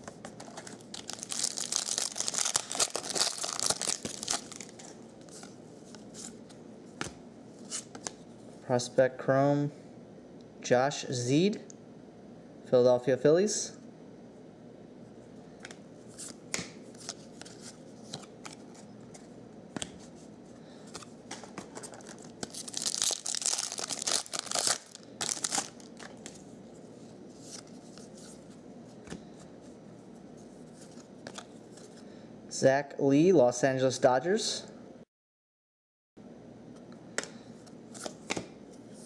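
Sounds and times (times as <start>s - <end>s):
foil wrapper crinkling and tearing: 0.5s - 5.0s, 22.0s - 26.2s.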